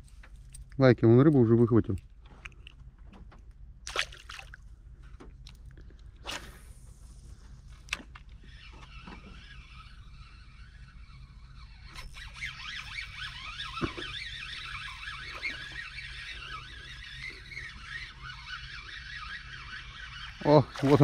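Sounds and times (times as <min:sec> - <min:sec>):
fishing reel whirring: 0:06.0 - 0:21.0
fishing reel click: 0:07.8 - 0:21.0.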